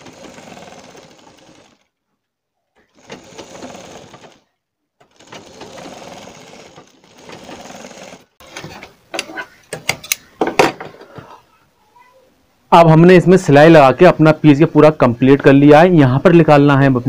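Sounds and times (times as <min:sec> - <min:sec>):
sewing machine stitching: 0:00.0 - 0:02.0, 0:02.8 - 0:08.9.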